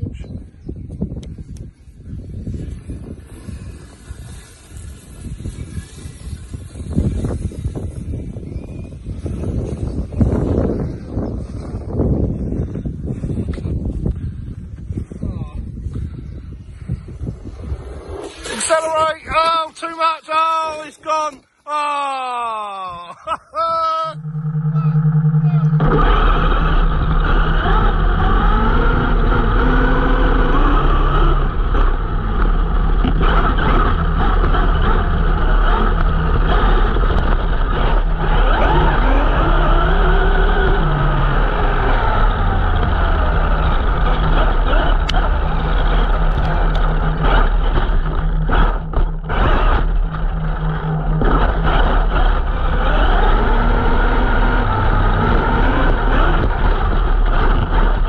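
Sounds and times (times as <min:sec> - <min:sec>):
rumble and rattle over ground: 0:00.0 - 0:20.0, 0:22.9 - 0:58.0
electric motor whining: 0:02.5 - 0:11.0, 0:24.0 - 0:58.0.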